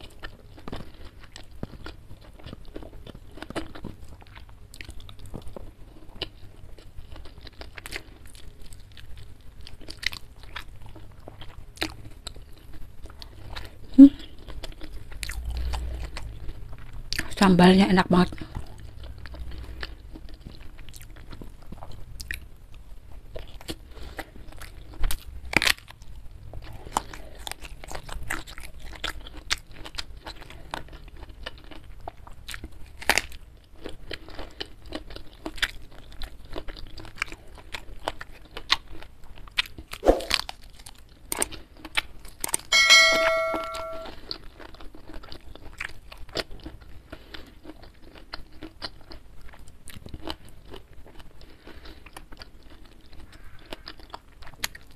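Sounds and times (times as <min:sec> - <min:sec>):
wet chewing and crunching: 0:00.0 - 0:42.8, 0:44.2 - 0:54.9
ringing clink: 0:42.7 - 0:44.1.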